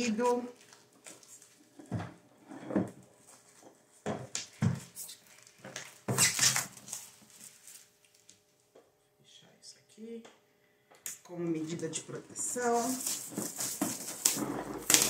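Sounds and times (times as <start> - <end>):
shrink wrap crinkling and tearing: 5.0 - 8.4, 12.5 - 15.0.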